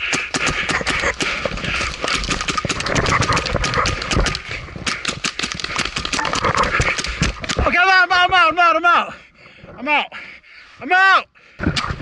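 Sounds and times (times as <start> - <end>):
paintball markers firing: 0.0 - 7.8.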